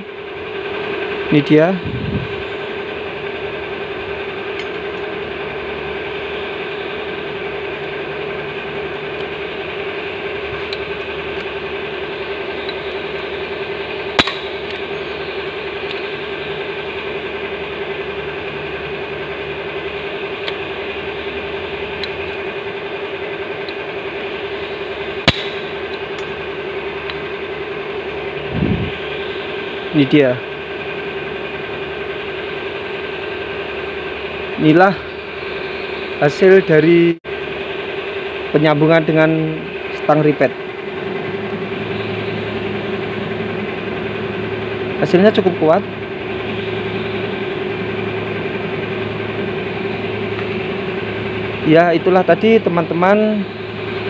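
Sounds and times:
steady droning hum: 0.0 - 54.0
rivet mandrel snapping: 14.2 - 14.8, 25.2 - 26.3.

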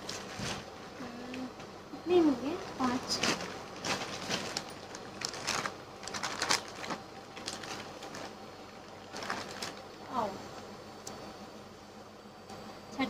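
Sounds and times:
plastic bag crinkling: 2.6 - 10.1.

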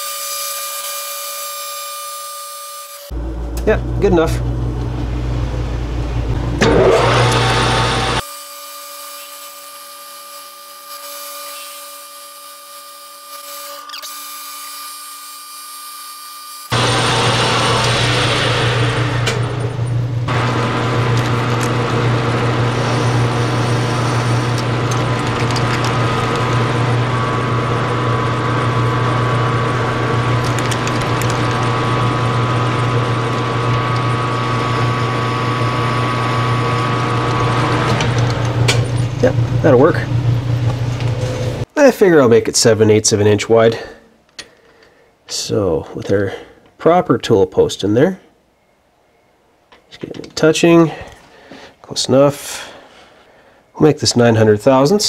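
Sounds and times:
metal lathe whine: 6.6 - 8.3, 12.8 - 41.6.

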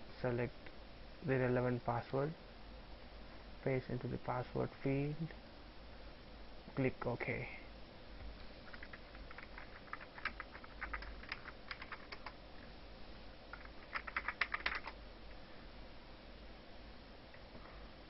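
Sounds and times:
faint keyboard typing: 8.2 - 12.4, 13.5 - 15.0.

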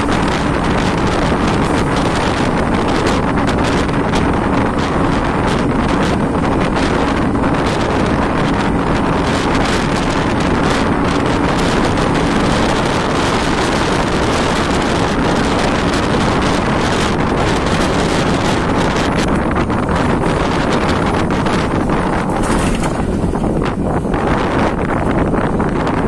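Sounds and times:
bus engine drone: 0.0 - 26.0
road noise: 0.0 - 26.0
wind buffeting microphone: 0.0 - 26.0.

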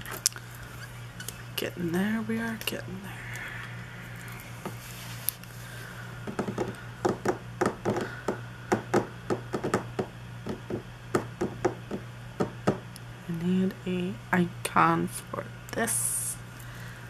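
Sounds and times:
low steady hum: 0.0 - 17.0
hands tapping desk supplies: 6.2 - 12.8.

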